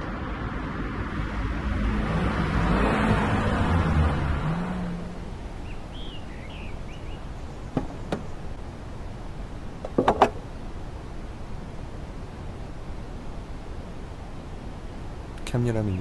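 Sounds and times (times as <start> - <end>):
bird chirps: 5.6 - 8.4.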